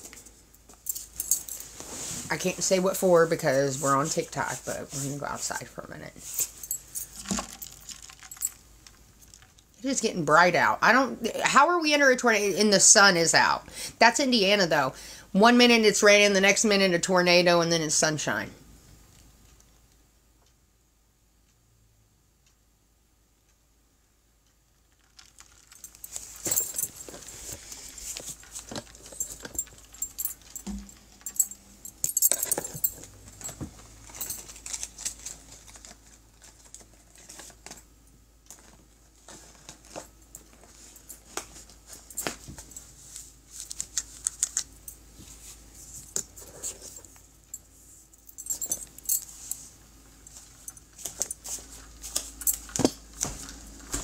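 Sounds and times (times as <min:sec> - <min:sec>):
sharp clicks and clinks: 0:28.6 - 0:34.6.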